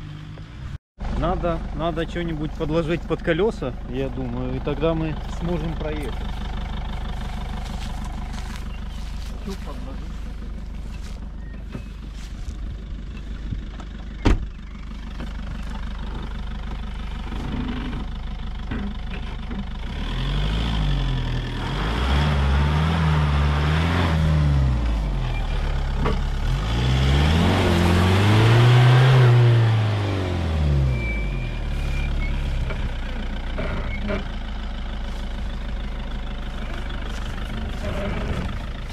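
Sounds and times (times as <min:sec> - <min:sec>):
car engine revving: 0:19.7 - 0:38.9.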